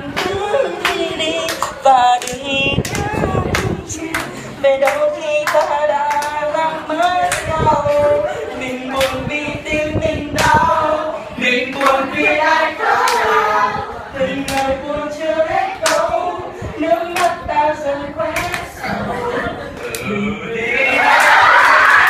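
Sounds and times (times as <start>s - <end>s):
young people singing together: 0.0s - 22.0s
hands clapping along: 0.1s - 8.0s, 9.0s - 9.2s, 10.4s - 10.6s, 11.7s - 12.0s, 14.4s - 14.7s, 15.8s - 16.1s, 17.1s - 17.4s, 18.4s - 18.7s.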